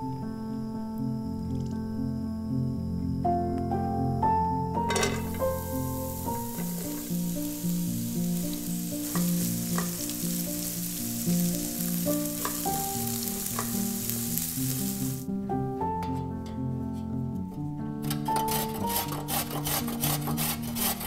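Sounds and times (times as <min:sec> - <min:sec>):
spatula stirring in pan: 0:04.9 - 0:15.2, 0:18.4 - 0:21.0
onion sizzling in oil: 0:04.9 - 0:15.3.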